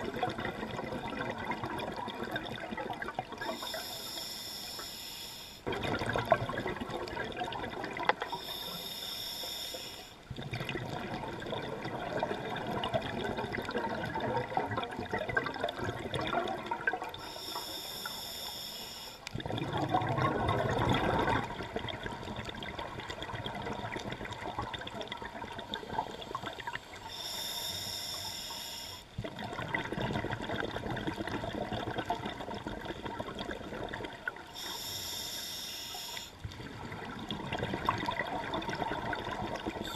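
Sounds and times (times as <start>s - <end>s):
gurgling exhaust bubbles: 0.0s - 3.6s, 5.7s - 8.3s, 10.3s - 17.2s, 19.3s - 26.8s, 29.2s - 34.5s, 36.5s - 39.9s.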